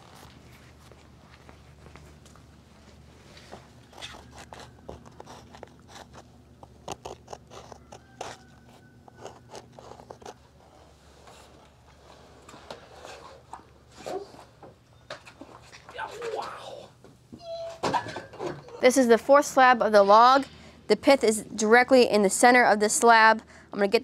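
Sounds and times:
low steady hum: 0:00.0 - 0:24.0
scrapes crunches and clicks: 0:03.4 - 0:10.6.

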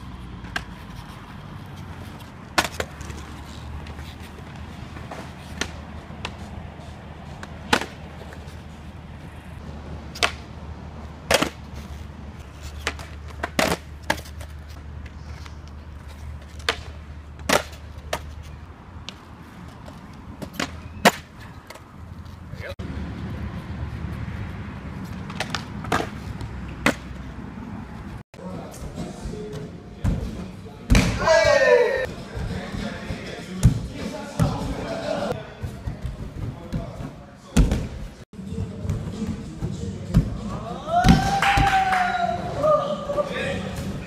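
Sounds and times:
skateboard wheels rolling on concrete: 0:00.0 - 0:29.2
skateboard clacking on ground: 0:01.9 - 0:06.5, 0:10.1 - 0:10.5, 0:11.2 - 0:21.8, 0:25.1 - 0:27.2.

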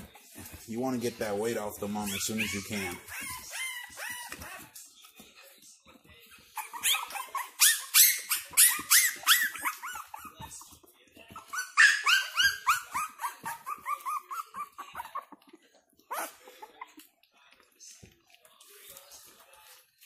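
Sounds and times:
puppies yelping and whining: 0:01.3 - 0:04.8, 0:06.2 - 0:17.1.

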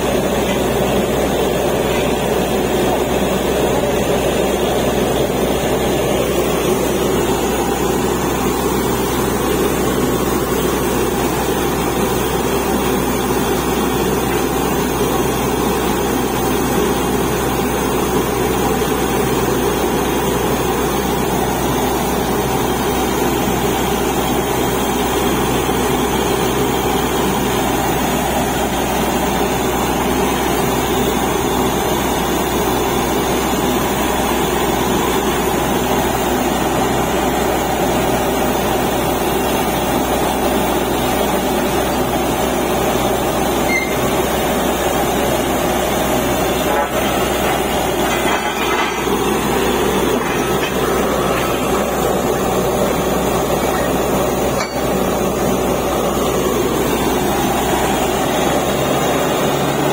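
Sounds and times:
diesel drilling rig droning: 0:00.0 - 0:59.9.

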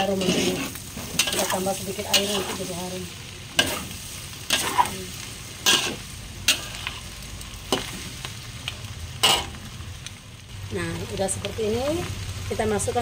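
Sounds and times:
metal spatula scraping wok: 0:00.0 - 0:02.9, 0:03.6 - 0:07.1, 0:09.2 - 0:09.6
food sizzling: 0:00.0 - 0:13.0.

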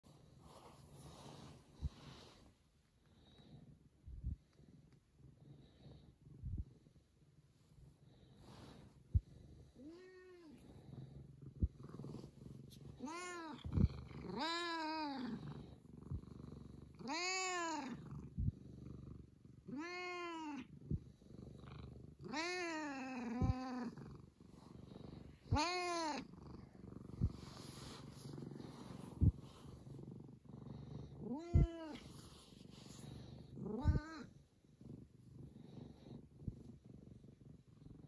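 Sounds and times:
cat purring: 0:00.0 - 0:38.0
cat meowing: 0:13.0 - 0:13.7, 0:14.3 - 0:15.3, 0:17.0 - 0:18.0, 0:19.7 - 0:20.6, 0:22.3 - 0:23.7, 0:25.5 - 0:26.2.

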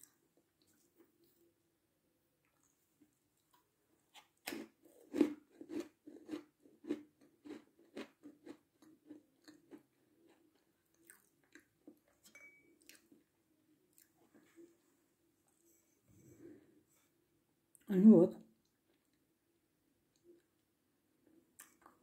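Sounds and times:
meringue being bitten and chewed: 0:04.2 - 0:12.2, 0:21.5 - 0:22.0.

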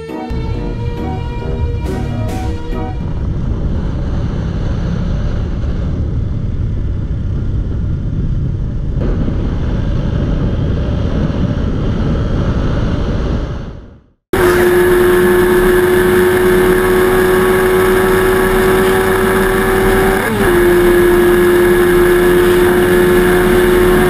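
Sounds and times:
wind rushing over microphone: 0:00.6 - 0:24.0
motorcycle engine running: 0:14.4 - 0:24.0.

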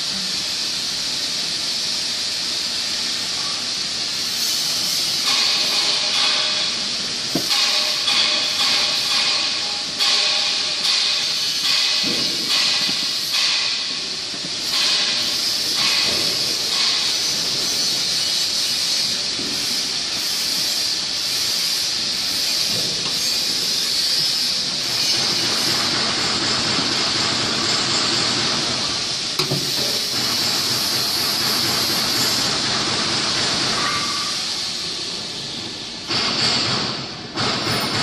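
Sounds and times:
steady high hiss: 0:00.0 - 0:26.0.

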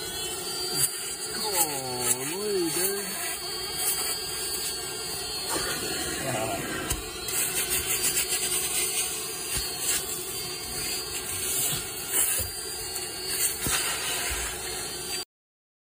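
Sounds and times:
cleaning solution spraying: 0:00.0 - 0:14.9
extraction machine vacuum hum: 0:00.0 - 0:15.2.

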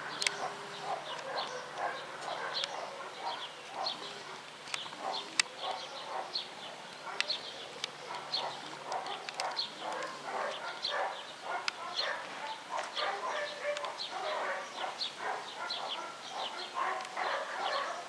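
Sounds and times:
dog barking: 0:00.4 - 0:04.4, 0:05.0 - 0:07.4, 0:08.0 - 0:18.0.

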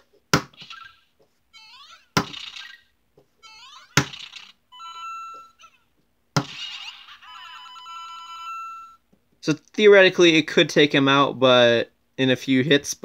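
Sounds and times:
toy figure knocking: 0:02.1 - 0:04.5.

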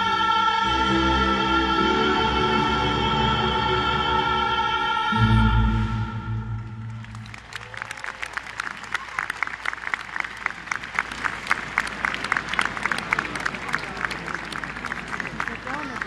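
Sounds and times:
crowd applauding: 0:06.7 - 0:16.0.

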